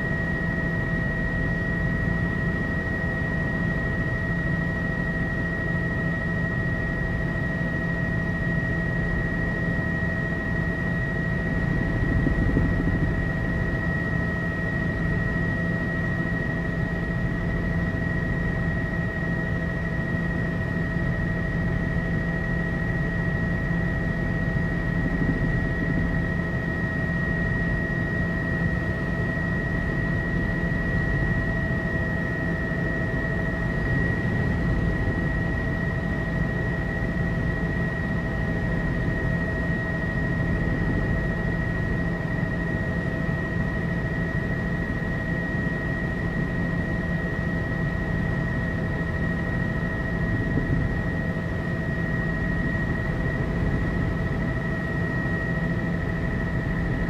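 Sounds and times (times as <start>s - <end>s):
helicopter engine and rotor drone: 0.0s - 57.0s
high-pitched whine: 0.0s - 57.0s.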